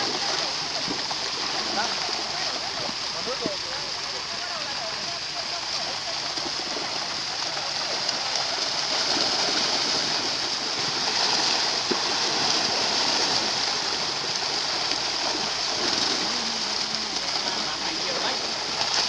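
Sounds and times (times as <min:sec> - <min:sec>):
fish thrashing in water: 0:05.2 - 0:19.0.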